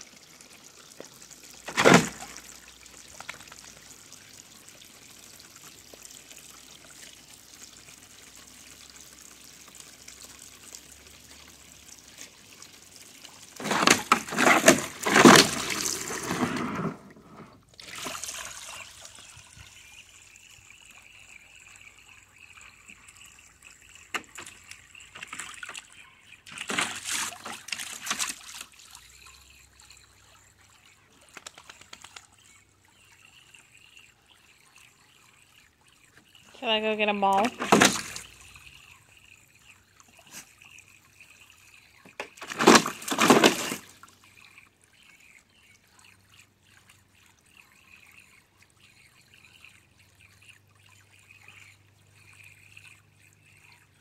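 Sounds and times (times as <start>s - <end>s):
hose water trickling: 0.0s - 54.0s
dog splashing in water: 42.3s - 44.0s.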